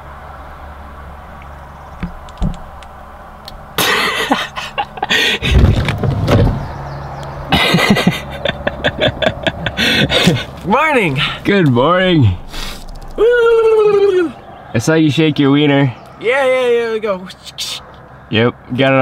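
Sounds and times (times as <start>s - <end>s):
car idling hum: 0.0s - 19.0s
close-up rustling and knocking: 5.5s - 6.7s.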